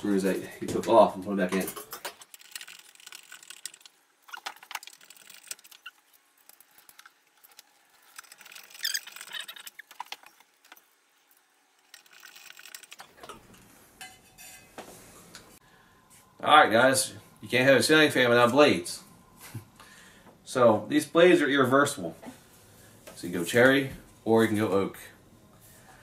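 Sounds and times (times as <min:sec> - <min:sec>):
squeaky scrape: 0:02.7 - 0:06.1, 0:08.0 - 0:10.5.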